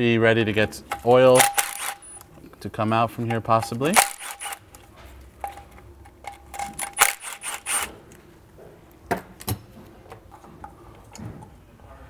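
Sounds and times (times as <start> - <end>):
metallic rattling: 0.8 - 2.3, 3.2 - 4.8, 5.4 - 8.1
cordless power tool whirring: 1.4 - 2.0, 4.0 - 4.6, 6.8 - 8.0.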